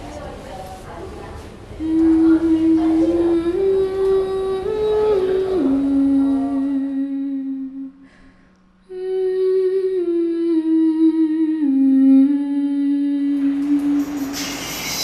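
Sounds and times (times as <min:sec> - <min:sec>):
woman humming: 0:01.8 - 0:08.1, 0:08.8 - 0:14.4.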